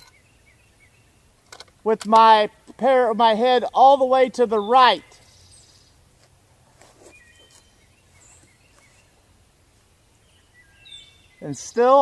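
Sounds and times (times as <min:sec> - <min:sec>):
faint bird chirps: 0:00.0 - 0:01.3, 0:07.0 - 0:09.3, 0:10.1 - 0:12.0
soft rustles: 0:05.6 - 0:10.0.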